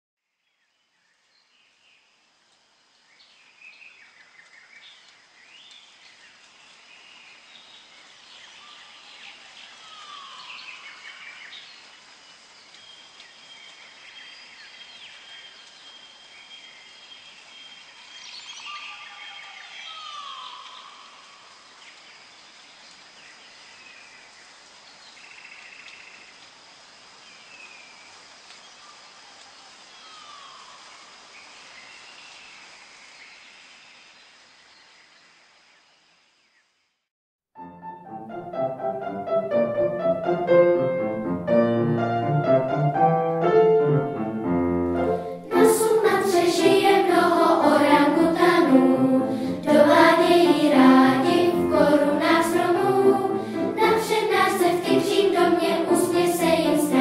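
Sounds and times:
bird calls and chirps: 3.1 - 26.4, 27.3 - 35.3.

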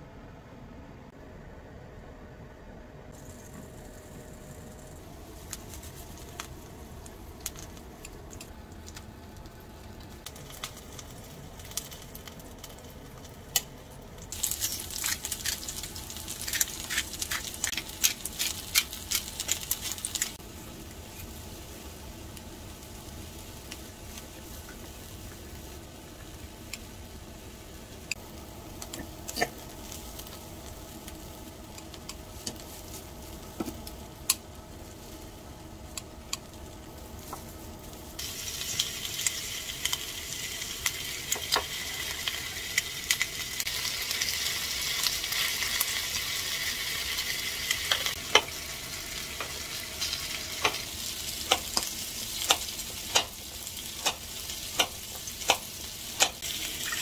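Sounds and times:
crackling while seasoning chicken: 3.2 - 57.0
kitchen scissors cutting: 16.4 - 20.4.

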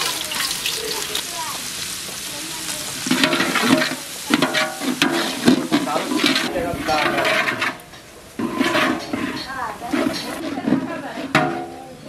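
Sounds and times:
onions sizzling in oil: 0.0 - 12.0
metal spatula scraping pot: 3.1 - 11.8.

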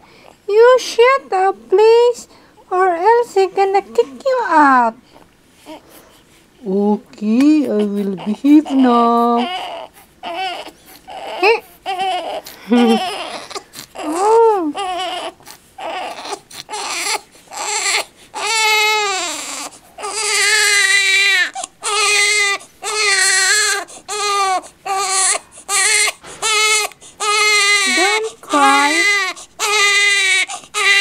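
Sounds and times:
infant crying: 7.8 - 31.0.

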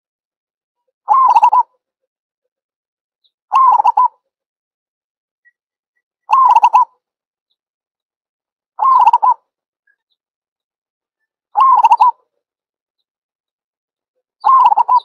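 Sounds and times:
dove cooing: 1.1 - 1.7, 3.5 - 4.1, 6.3 - 6.9, 8.8 - 9.4, 11.6 - 12.2, 14.4 - 15.0.

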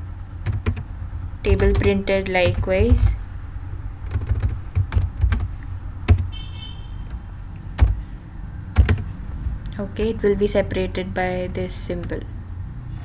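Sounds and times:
typing on computer keyboard: 0.5 - 0.9, 1.5 - 3.2, 4.0 - 5.5, 6.1 - 6.3, 7.8 - 8.0, 8.8 - 9.1.

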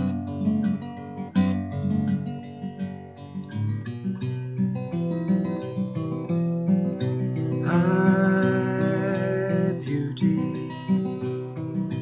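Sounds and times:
acoustic guitar playing: 0.0 - 12.0.

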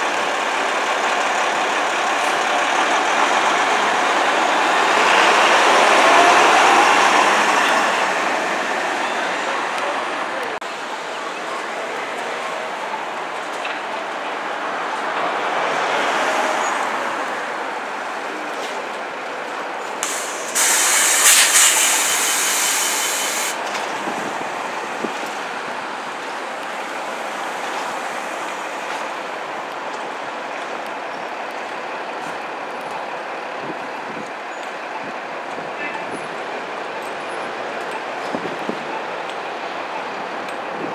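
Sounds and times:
bus engine running: 0.0 - 15.4, 17.3 - 40.9
traffic noise: 0.0 - 40.9
air brakes hissing: 20.0 - 23.6.

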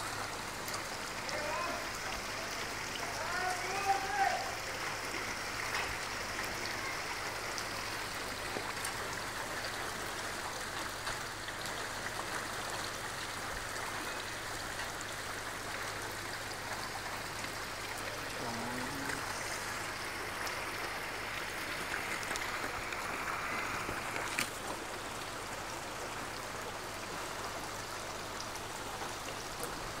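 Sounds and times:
floodwater rushing: 0.0 - 30.0.

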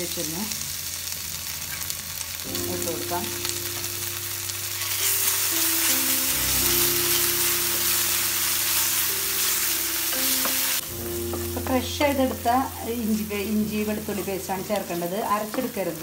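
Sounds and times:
paste sizzling in hot oil: 0.0 - 16.0
wooden spatula stirring: 10.1 - 15.9.

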